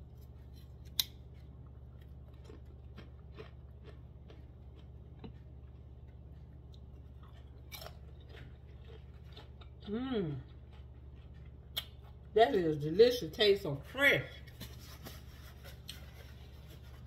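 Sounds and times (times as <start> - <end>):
person chewing crunchy chips: 0.0 - 12.4
steady low hum: 0.0 - 17.0.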